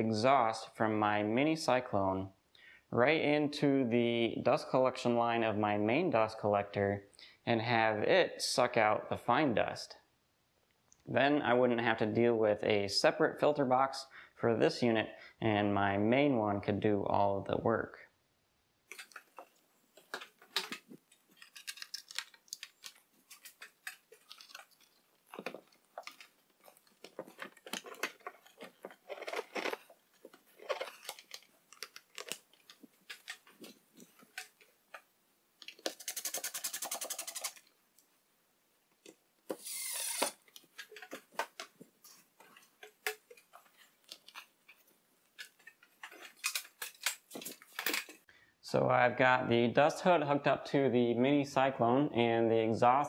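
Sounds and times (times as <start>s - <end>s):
plastic parts clicking and rattling: 18.9s - 37.8s, 39.0s - 48.3s.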